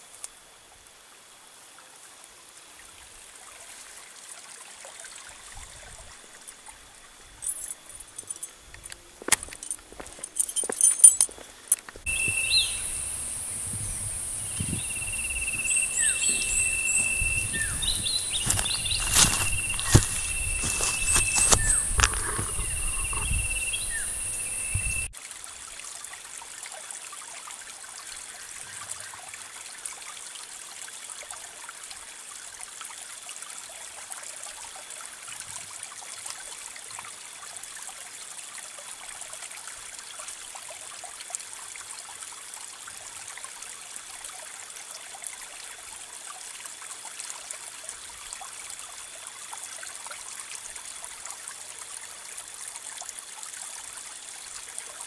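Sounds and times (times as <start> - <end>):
high outdoor hiss: 0.0 - 26.4
shrill buzz: 12.1 - 25.1.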